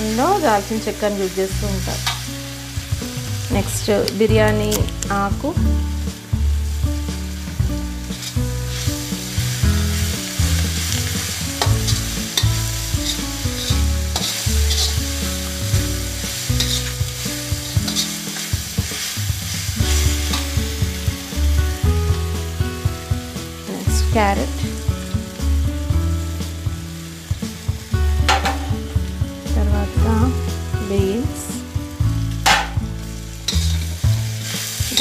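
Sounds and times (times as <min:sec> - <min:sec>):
onions sizzling in hot oil: 0:00.0 - 0:35.0
steel spatula scraping a pan: 0:08.0 - 0:20.6, 0:33.5 - 0:35.0.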